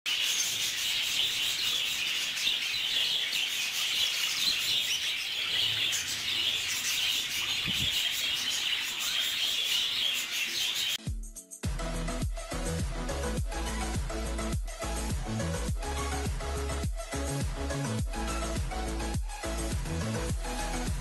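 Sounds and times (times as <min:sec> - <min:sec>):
budgerigars chattering and chirping: 0:00.1 - 0:11.0.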